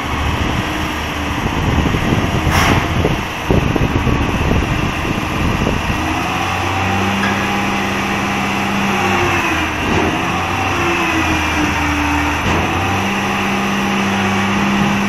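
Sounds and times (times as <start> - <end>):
diesel engine hum: 0.0 - 15.0.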